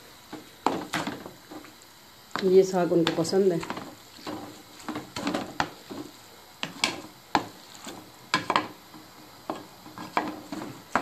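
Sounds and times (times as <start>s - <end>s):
spatula scraping metal pan: 3.6s - 8.8s, 9.5s - 11.0s.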